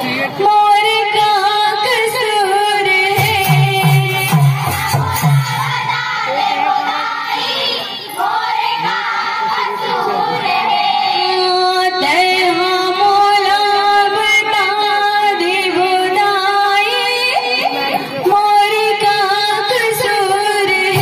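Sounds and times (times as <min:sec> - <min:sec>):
girls singing folk song: 0:01.1 - 0:17.2.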